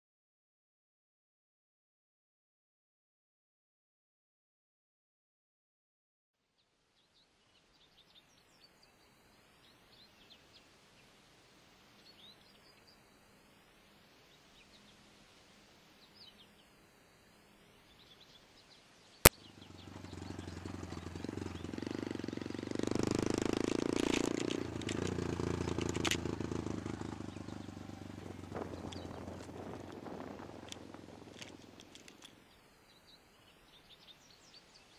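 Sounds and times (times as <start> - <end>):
faint birds chirping: 6.5 - 34.9
small motorcycle engine running: 19.4 - 32.4.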